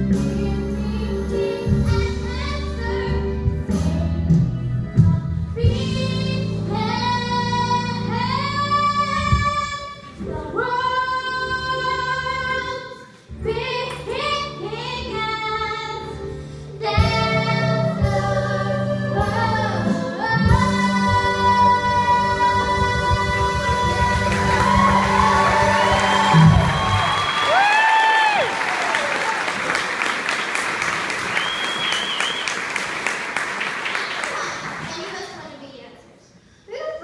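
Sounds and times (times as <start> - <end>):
musical accompaniment: 0.0 - 35.0
girl singing: 0.1 - 4.0, 5.0 - 16.2.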